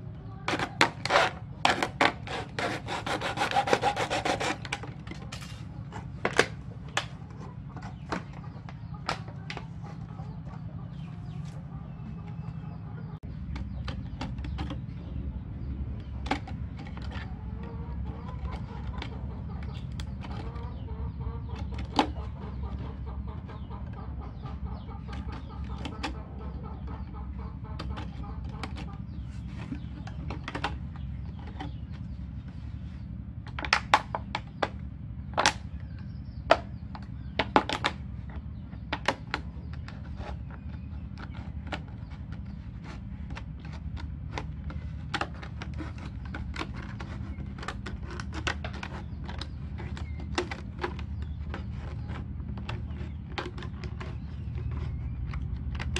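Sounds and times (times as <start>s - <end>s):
steady low hum: 0.0s - 55.9s
scissors cutting plastic bottle: 0.5s - 5.6s.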